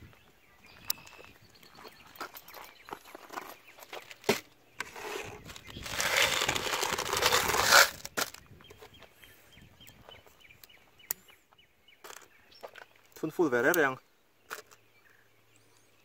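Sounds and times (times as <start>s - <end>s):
cartridges rattling in cardboard box: 5.0s - 8.4s.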